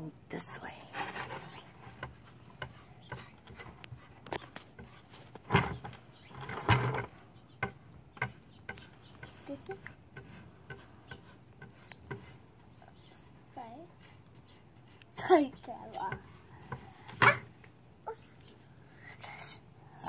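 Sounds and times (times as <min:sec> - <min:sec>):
sponge brush scraping on wood: 0:00.9 - 0:07.2, 0:08.2 - 0:17.5.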